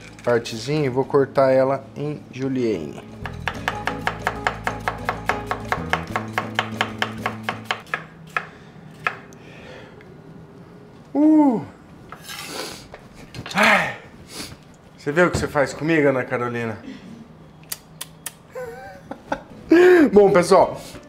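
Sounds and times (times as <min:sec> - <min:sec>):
person exclaiming: 0:11.1 - 0:11.8.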